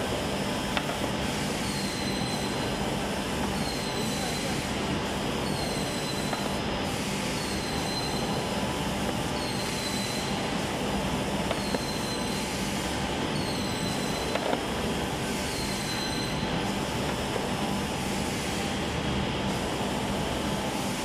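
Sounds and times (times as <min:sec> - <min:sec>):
high machine whine: 0:00.0 - 0:21.0.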